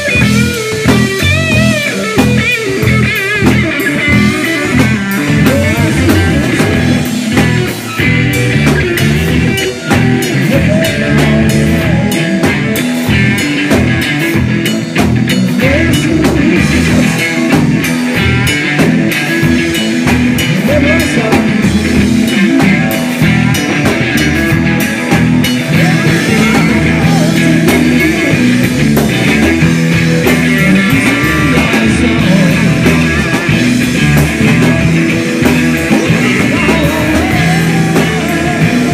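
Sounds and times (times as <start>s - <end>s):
distorted electric guitar: 0.0s - 38.9s
drum hits: 0.0s - 38.9s
live rock band playing: 0.0s - 38.9s.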